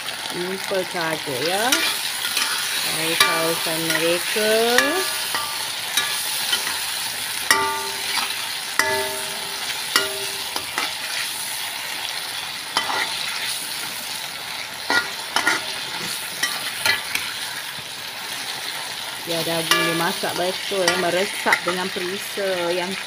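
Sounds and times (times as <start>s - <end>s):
chicken sizzling in sauce: 0.0s - 23.0s
metal spatula scraping wok: 1.3s - 11.4s, 12.8s - 14.0s, 14.8s - 17.5s, 19.3s - 22.2s.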